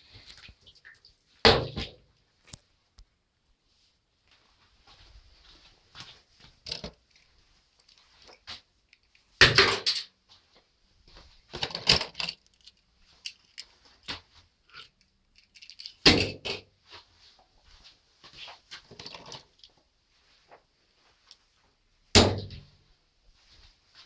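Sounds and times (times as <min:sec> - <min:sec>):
toy cars rattling in plastic bin: 0:11.6 - 0:13.6.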